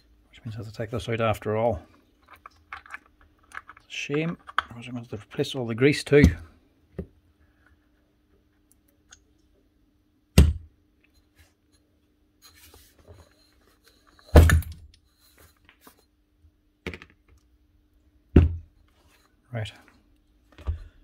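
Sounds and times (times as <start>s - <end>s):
hard knocks on a workbench: 10.4s - 10.7s, 18.4s - 18.6s.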